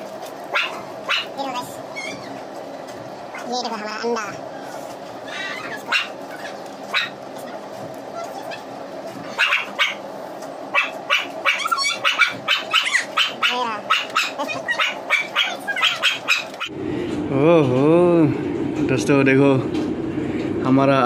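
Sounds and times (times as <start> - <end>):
dog barking and yipping: 0.4 - 2.4, 5.4 - 7.6, 8.2 - 10.1, 10.7 - 16.7.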